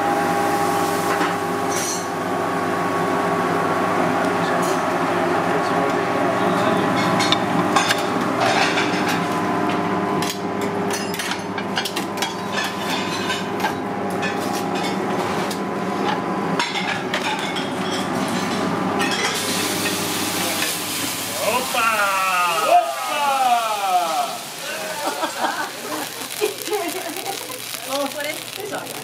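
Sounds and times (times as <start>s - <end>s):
oil frying in deep fryer: 0.0s - 29.0s
steady kitchen hum: 0.0s - 29.0s
clinks of tongs and plates: 10.2s - 15.0s, 16.6s - 20.0s.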